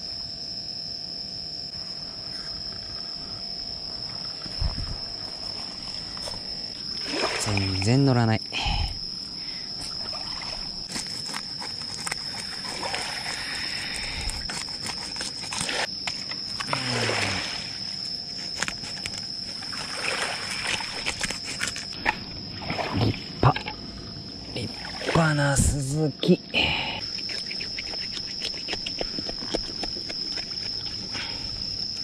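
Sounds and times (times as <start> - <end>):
insects chirring: 0.0 - 32.0
water lapping and splashing: 4.1 - 8.0, 9.8 - 15.9, 16.6 - 23.8, 24.6 - 25.7, 27.2 - 31.6.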